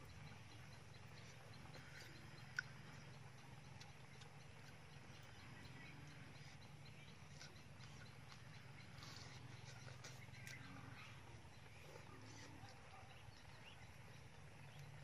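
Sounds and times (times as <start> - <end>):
small ticks: 0.0 - 11.6
faint low hum: 0.0 - 15.0.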